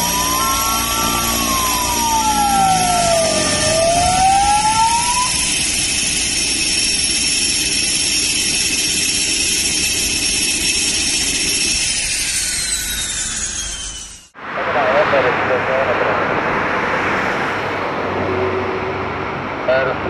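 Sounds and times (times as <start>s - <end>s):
rising tone: 0.0s - 19.6s
propeller drone: 0.0s - 20.0s
turbine whine: 0.0s - 20.0s.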